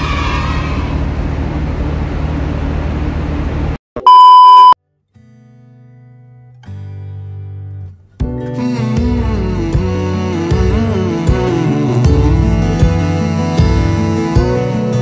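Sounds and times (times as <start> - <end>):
ferry engine drone: 0.0 - 3.8
loud pure beep tone: 4.0 - 4.8
low electronic tones: 4.0 - 4.8
music with plucked guitar: 5.1 - 15.0.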